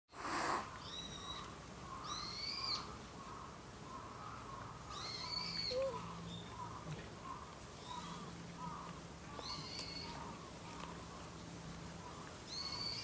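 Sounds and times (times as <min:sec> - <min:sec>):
high-pitched animal calls: 0:04.9 - 0:06.2.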